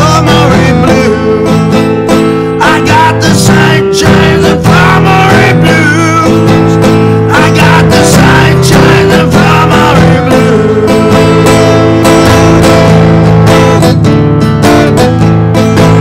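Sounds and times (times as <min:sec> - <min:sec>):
man singing: 0:00.0 - 0:12.6
acoustic guitar strumming: 0:00.0 - 0:16.0.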